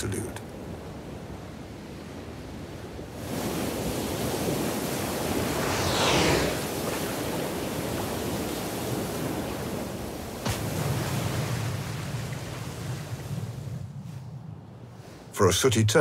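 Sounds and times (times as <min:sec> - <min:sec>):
ocean waves breaking: 0:00.0 - 0:14.2
whoosh of water: 0:05.1 - 0:07.4.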